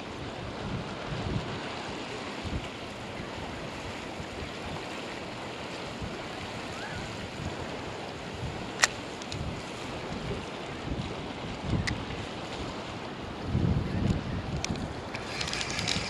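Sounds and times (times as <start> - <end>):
sea waves against pier: 0.0 - 16.0
wind buffeting microphone: 0.0 - 16.0
sharp click: 8.8 - 9.4.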